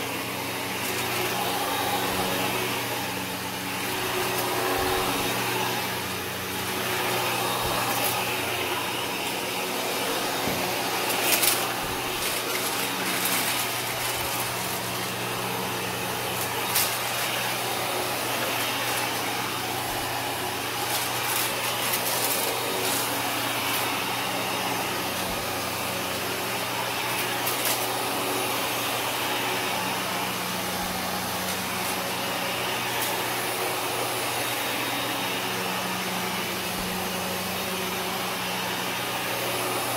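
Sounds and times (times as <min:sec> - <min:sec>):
vacuum cleaner running on carpet: 0:00.0 - 0:39.9.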